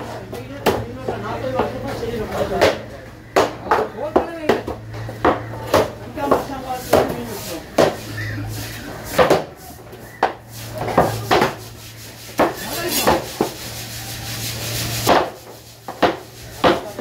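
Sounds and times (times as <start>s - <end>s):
knife chopping on wooden block: 3.4s - 8.1s, 10.2s - 11.6s, 12.4s - 13.6s, 15.1s - 17.0s.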